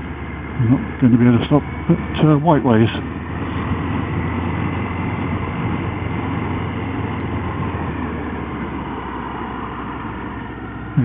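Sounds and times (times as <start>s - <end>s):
motorcycle engine running: 0.0s - 11.0s
wind noise: 3.0s - 10.5s.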